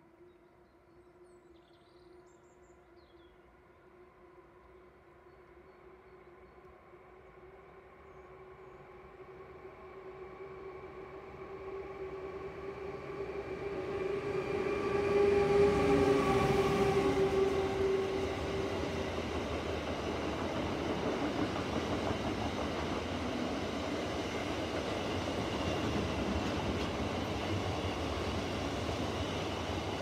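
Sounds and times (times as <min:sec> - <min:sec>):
electric locomotive tone: 0:09.8 - 0:20.6
train wagons rumbling: 0:17.0 - 0:30.0.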